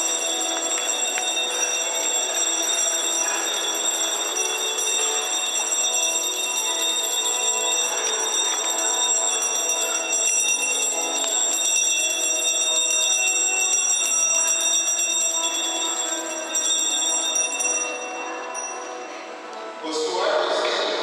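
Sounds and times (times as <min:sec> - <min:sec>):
hand bells ringing and jingling: 0:00.0 - 0:19.2.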